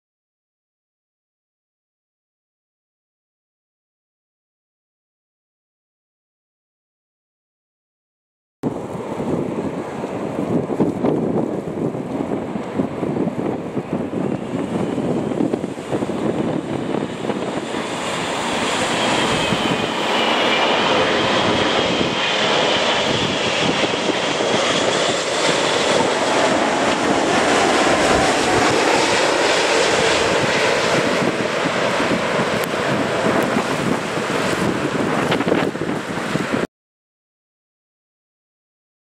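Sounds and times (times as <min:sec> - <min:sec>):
jet roar: 0:08.6 - 0:36.7
high wavering whine: 0:14.7 - 0:36.5.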